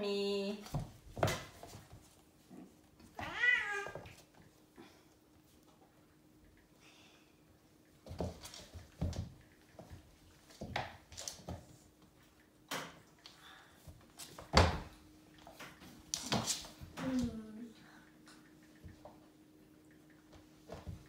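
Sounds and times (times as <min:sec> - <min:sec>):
cats thumping and scuffling on floor: 0:00.6 - 0:04.6, 0:07.8 - 0:17.4, 0:20.2 - 0:21.0.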